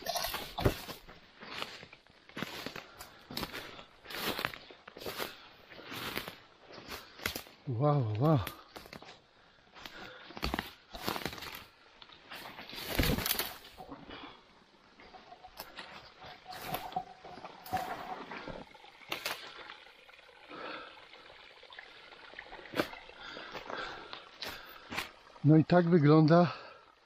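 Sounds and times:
footsteps through undergrowth: 0.0 - 13.9
twigs snapping and rustling: 7.0 - 7.6, 9.8 - 13.8.

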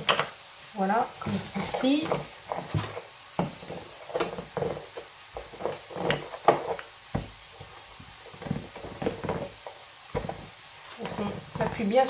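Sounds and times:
rolling pin rolling over pastry: 0.0 - 12.0
knocks and thumps: 1.2 - 12.0.

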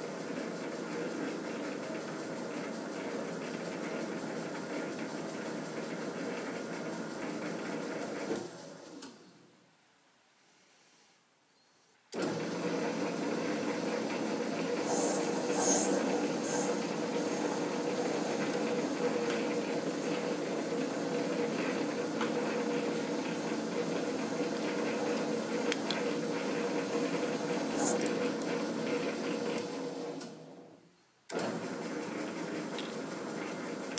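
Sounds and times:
metal lathe gear hum: 12.2 - 30.1
hiss of metal cutting: 14.8 - 19.3, 27.0 - 28.1.

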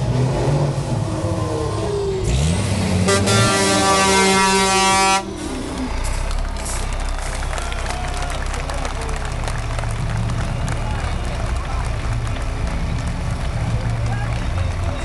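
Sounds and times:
truck diesel engine revving: 0.0 - 15.0
air horn: 3.0 - 5.4.

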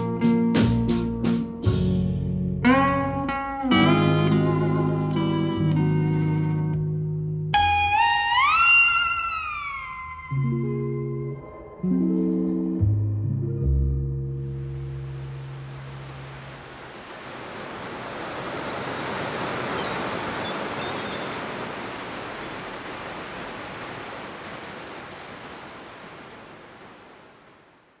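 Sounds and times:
ocean surf washing: 14.5 - 28.0.

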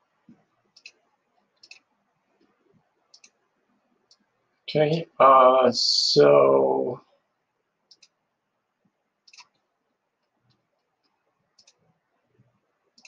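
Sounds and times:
computer mouse clicks: 0.3 - 3.4, 4.0 - 4.3, 7.9 - 8.2, 9.2 - 13.0.

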